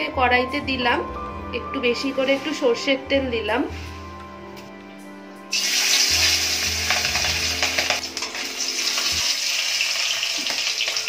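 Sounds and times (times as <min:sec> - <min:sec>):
fish sizzling in hot oil: 0:05.5 - 0:11.0.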